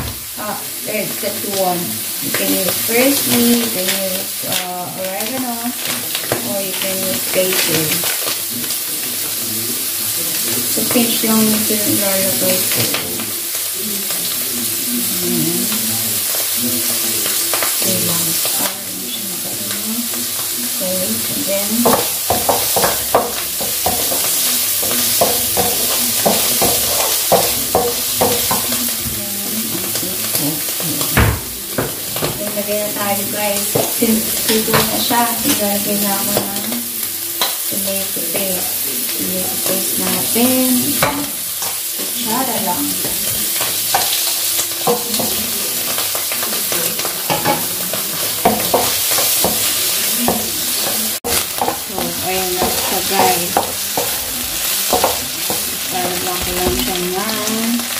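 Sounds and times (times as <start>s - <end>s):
mushrooms sizzling in oil: 0.0s - 57.9s
spatula scraping and tapping pan: 21.2s - 57.9s.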